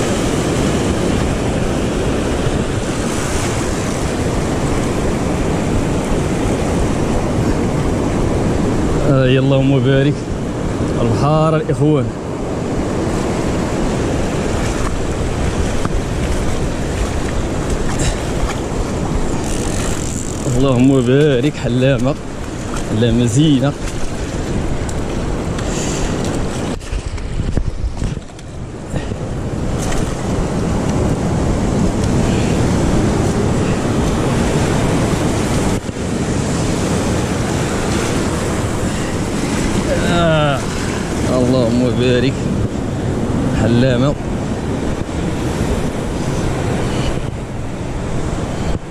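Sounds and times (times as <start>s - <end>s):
surf rushing over rocks: 0.0s - 48.9s
wind buffeting microphone: 0.0s - 48.9s.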